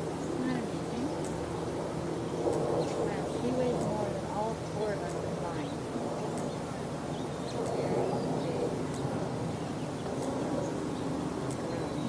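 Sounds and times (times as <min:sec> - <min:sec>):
low steady hum: 0:00.0 - 0:12.0
onlookers chattering: 0:02.8 - 0:12.0.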